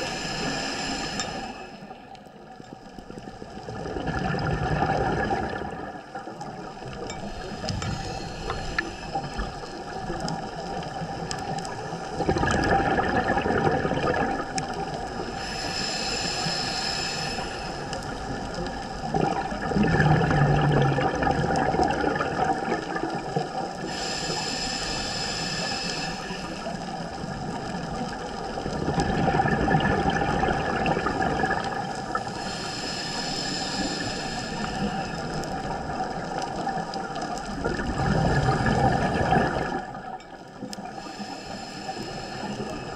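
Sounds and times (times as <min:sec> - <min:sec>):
regulator inhale hiss: 0:00.0 - 0:02.2, 0:06.3 - 0:12.2, 0:14.7 - 0:19.0, 0:23.6 - 0:28.7, 0:31.7 - 0:37.6, 0:40.6 - 0:42.9
exhaled bubbles rushing underwater: 0:00.0 - 0:16.6, 0:17.2 - 0:24.6, 0:25.6 - 0:42.9.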